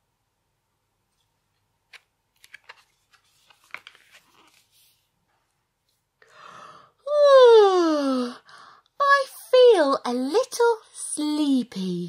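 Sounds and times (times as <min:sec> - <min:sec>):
board book pages turning: 0:01.1 - 0:06.0.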